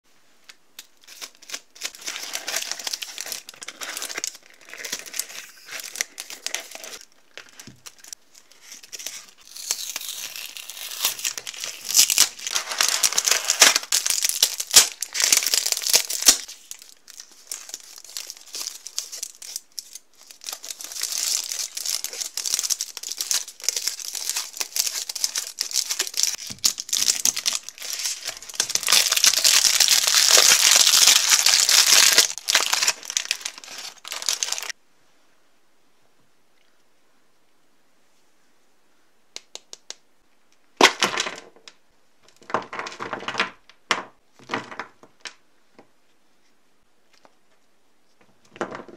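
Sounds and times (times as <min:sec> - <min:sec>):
foil wrapper crinkling and tearing: 0:00.9 - 0:34.8.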